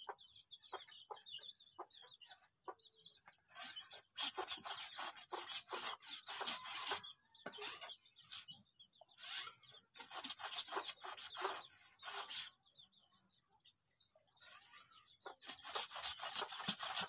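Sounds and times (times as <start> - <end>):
hand sprayer hissing: 15.4 - 17.0.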